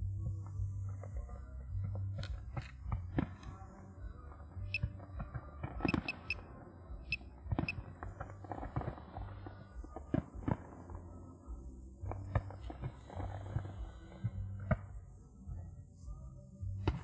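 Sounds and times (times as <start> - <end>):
music: 0.0 - 17.0
fireworks bangs and cracks: 7.8 - 9.4.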